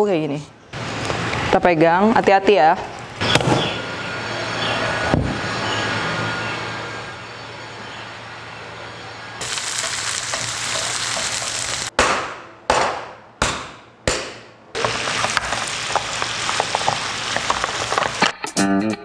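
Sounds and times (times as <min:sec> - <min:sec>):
food sizzling in a pan: 0:09.4 - 0:11.9, 0:14.8 - 0:18.3
sharp knocks: 0:12.0 - 0:14.9.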